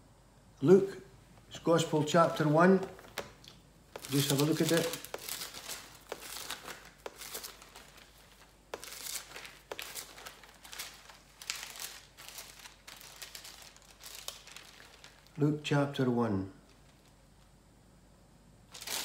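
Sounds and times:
thin paper pages rustling: 1.8s - 15.4s, 18.7s - 19.0s.

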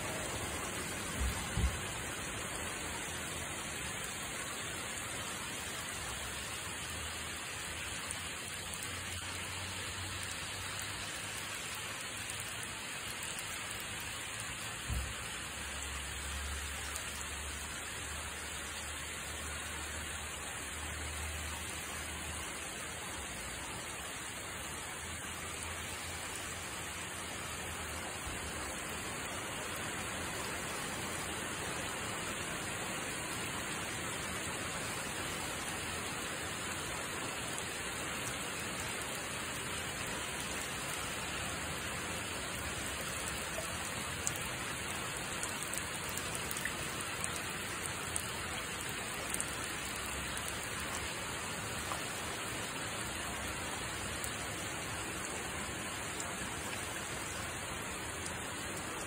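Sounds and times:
falling rain: 0.0s - 59.0s
water trickling down rain chain: 0.1s - 22.3s, 35.8s - 59.0s.

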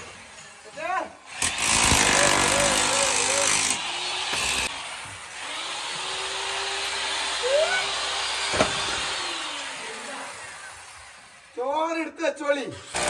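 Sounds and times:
demolition hammer chipping tiles: 1.4s - 4.7s.

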